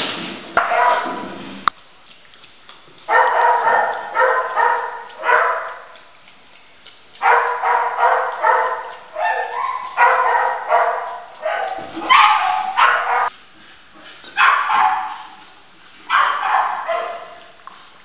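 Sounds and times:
dog lapping water from metal bowl: 0.6 - 18.0.

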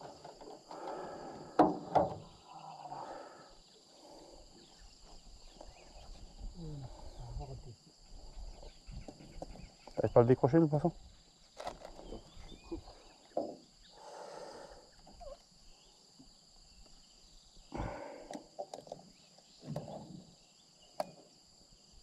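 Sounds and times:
high drone of insects: 0.0 - 22.0
knocks and thuds in boat: 19.6 - 20.3.

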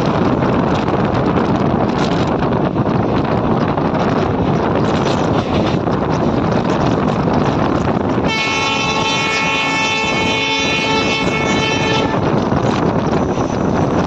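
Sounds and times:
train wheels rumbling on track: 0.0 - 14.0
wind noise on microphone: 0.0 - 14.0
train horn blast: 8.2 - 12.3.

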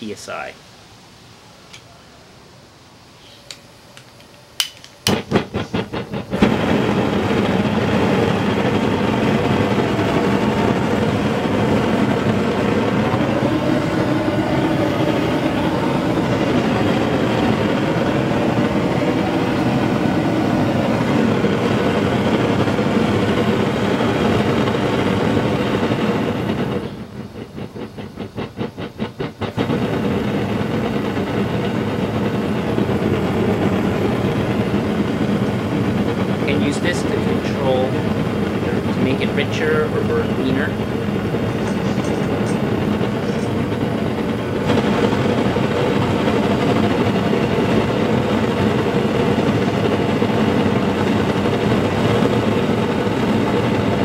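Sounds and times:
propane burner roaring: 0.0 - 54.0
igniter clicks: 3.5 - 6.5.

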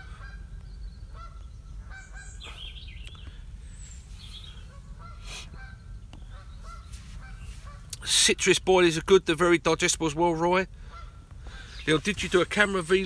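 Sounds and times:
geese honking: 0.0 - 0.5, 1.1 - 2.8, 4.3 - 13.0
high gliding bird call: 0.0 - 7.9
steady low rumble: 0.0 - 13.0.

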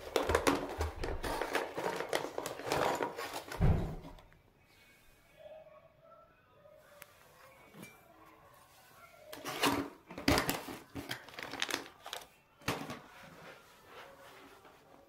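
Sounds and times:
plastic packet rustling and crinkling: 0.0 - 4.2, 9.3 - 14.9.

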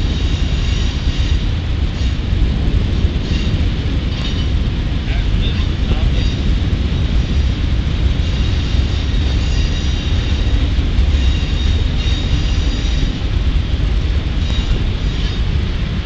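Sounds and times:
steel wheels rumbling on rail: 0.0 - 16.0
faint high wheel squeals: 8.3 - 13.2.

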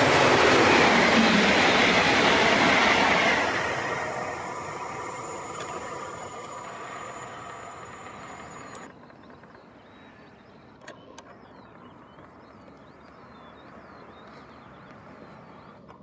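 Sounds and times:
steady high hum: 0.0 - 8.9
train rumble: 0.0 - 9.7
small clicks: 5.5 - 9.6.

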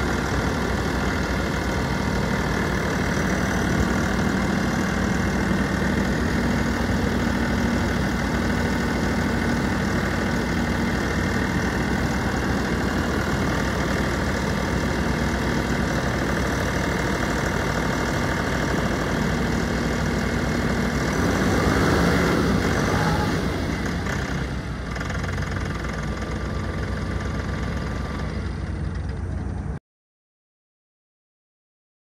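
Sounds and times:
tractor diesel engine running: 0.0 - 29.8.

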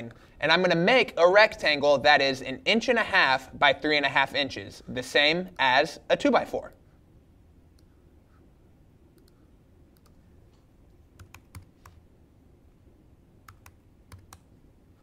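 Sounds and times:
laptop keystrokes: 11.1 - 12.0, 13.4 - 14.5.

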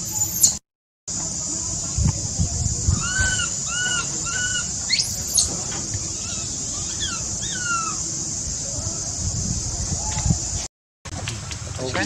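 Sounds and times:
infant monkey squealing: 0.0 - 0.6, 2.9 - 8.1
steady high hiss: 0.0 - 12.0.

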